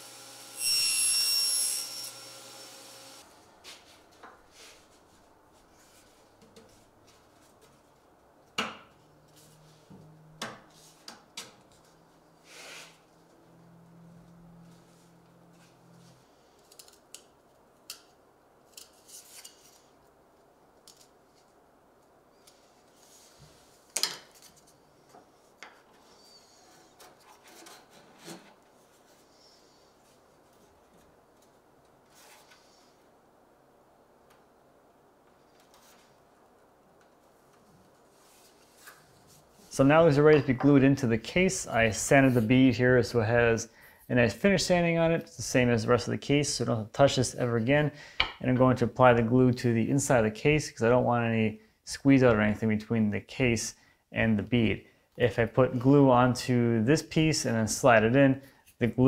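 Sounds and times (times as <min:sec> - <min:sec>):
table saw running: 0:00.0 - 0:03.2.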